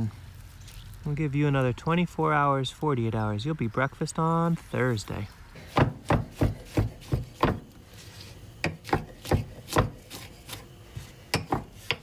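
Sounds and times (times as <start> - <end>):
knife slicing mushrooms: 5.6 - 12.0.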